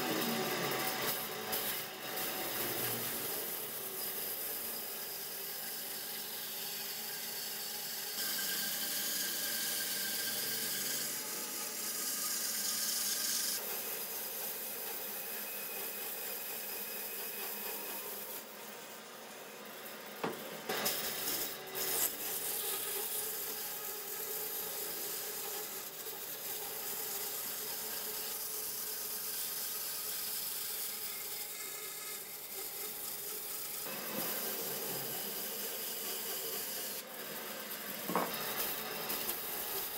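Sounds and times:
band saw cutting wood: 0.0 - 39.9
sharp knocks: 20.2 - 20.5.

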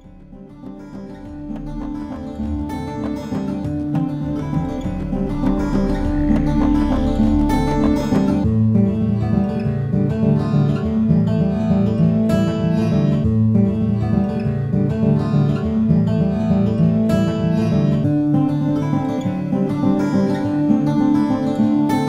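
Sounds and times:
acoustic guitar music: 0.0 - 22.0.

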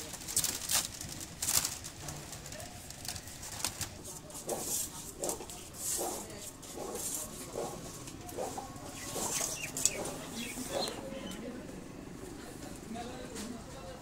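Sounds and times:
bamboo strips clicking and rattling: 0.0 - 6.2
pigeon cooing: 8.3 - 11.5.

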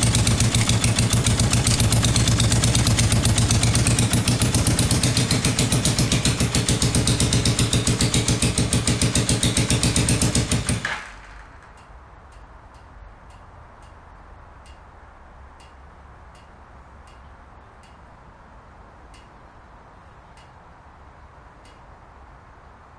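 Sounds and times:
motorcycle engine idling: 0.0 - 12.0
faint regular ticks: 15.6 - 18.0, 19.1 - 19.4.

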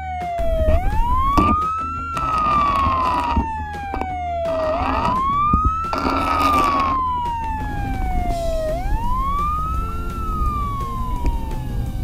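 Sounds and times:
electronic siren wailing: 0.0 - 12.0.

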